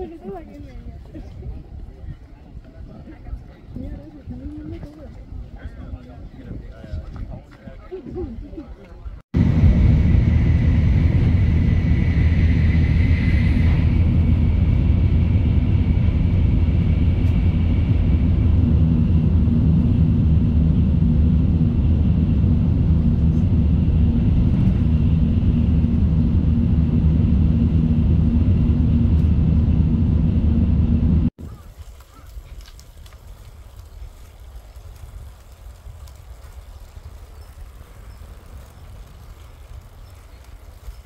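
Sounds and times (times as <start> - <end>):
train low rumble: 0.0 - 41.0
thin high whine: 9.6 - 19.6.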